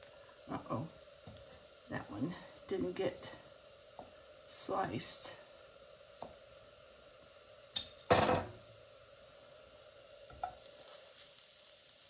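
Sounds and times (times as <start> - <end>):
butter sizzling in frying pan: 0.0 - 12.0.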